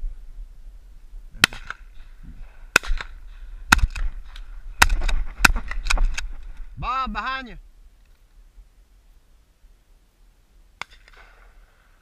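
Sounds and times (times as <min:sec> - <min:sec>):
shotgun shots: 0:01.4 - 0:01.9, 0:02.7 - 0:04.2, 0:04.8 - 0:05.9.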